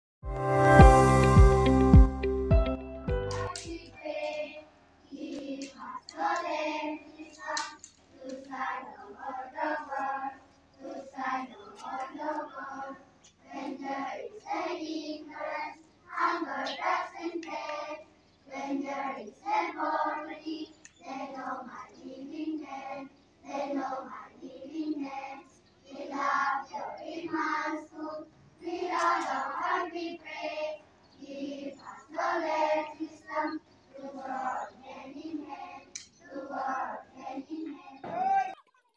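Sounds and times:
children singing in chorus: 3.4 - 38.3.

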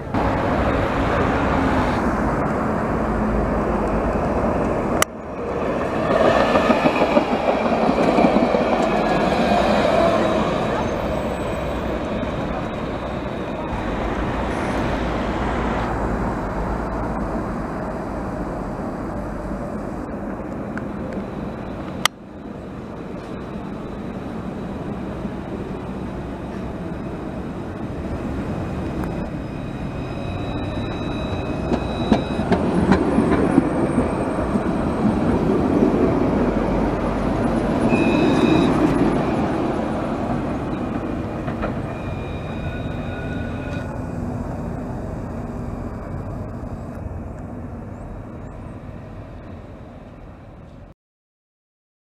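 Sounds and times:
tram wheels rumbling on rail: 0.0 - 50.9
high wheel squeal: 5.4 - 15.9, 23.1 - 35.4, 36.6 - 46.8.

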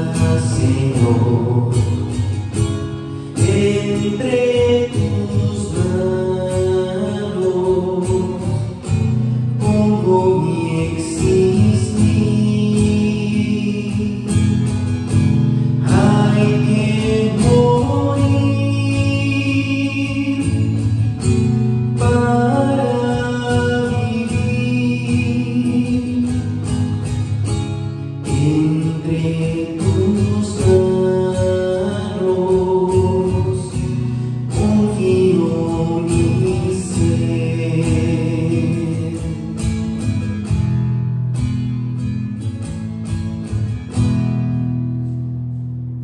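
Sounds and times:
man singing a hymn: 0.0 - 2.1, 3.3 - 8.8, 9.6 - 14.4, 15.8 - 20.9, 21.9 - 26.4, 28.3 - 39.6
classical guitar strumming: 0.0 - 46.0.

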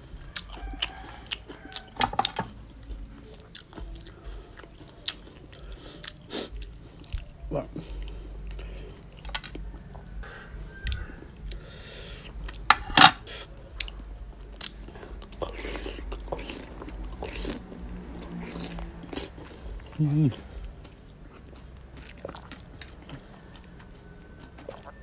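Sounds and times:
wet chewing and mouth smacking: 0.0 - 25.0.

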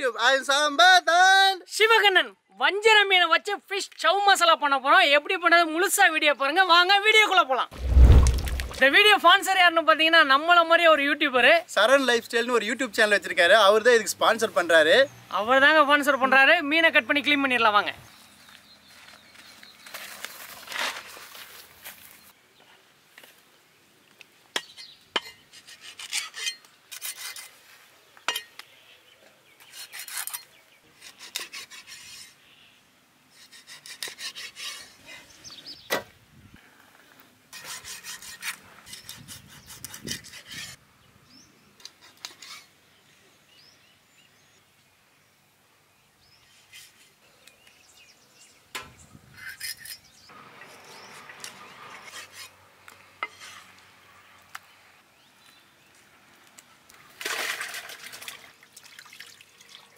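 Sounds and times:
knife scraping fish: 37.5 - 40.8.

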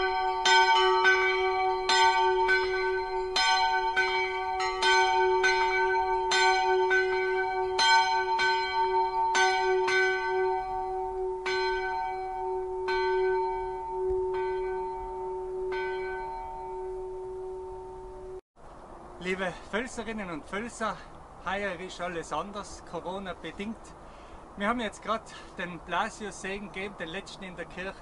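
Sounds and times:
church bells ringing: 0.0 - 18.4
hum of bells: 0.0 - 18.4.

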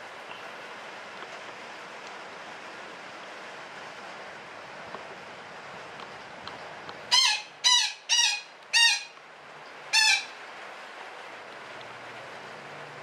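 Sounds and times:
parakeet squawking: 7.1 - 9.2, 9.9 - 10.4.

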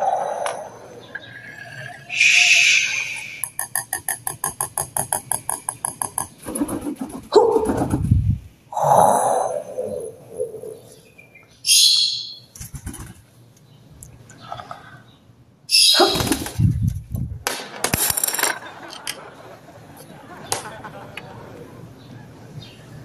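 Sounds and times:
parrot chirping and squawking: 0.0 - 3.5, 11.6 - 12.5, 15.7 - 16.3.

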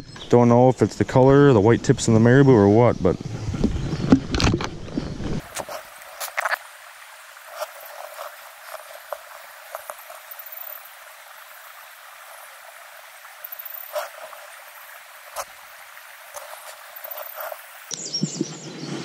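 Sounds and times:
stream rushing: 5.4 - 17.9.

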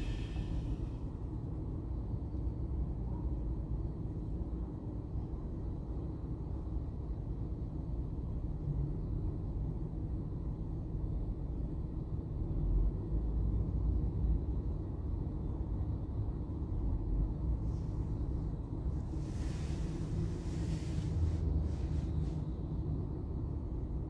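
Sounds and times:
hiss: 0.0 - 1.1, 17.6 - 22.5
low rumble inside car: 0.0 - 24.0.

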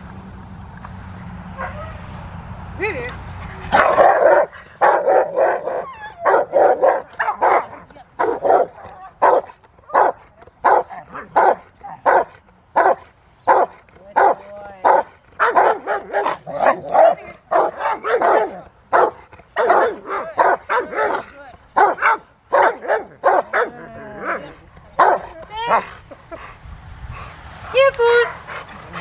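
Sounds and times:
dog barking sharply: 3.7 - 23.7.

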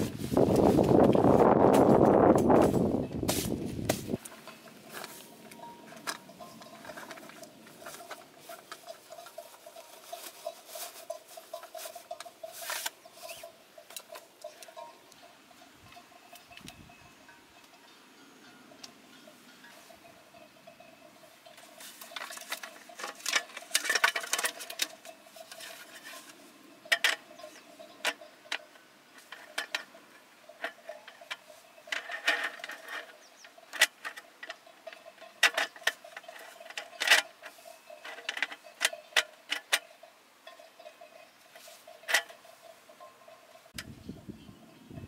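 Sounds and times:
metal camp table clicking and rattling: 0.5 - 15.0, 21.5 - 40.7, 41.5 - 42.4.

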